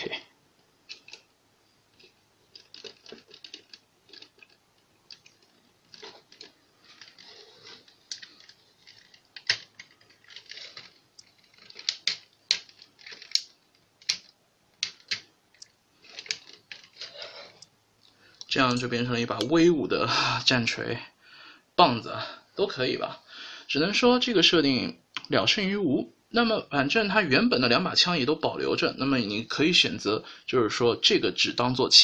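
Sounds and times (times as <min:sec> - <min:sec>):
plastic toy parts clicking: 0:00.9 - 0:01.3, 0:02.0 - 0:17.2.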